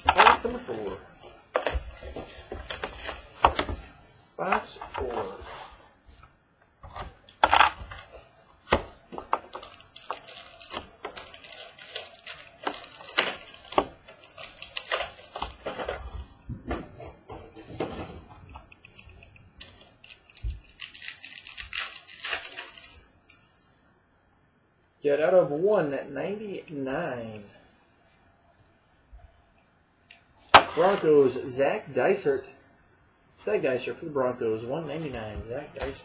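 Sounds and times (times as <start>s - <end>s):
packaging crinkling and rustling: 0.0s - 5.7s, 6.9s - 16.3s, 18.9s - 23.1s.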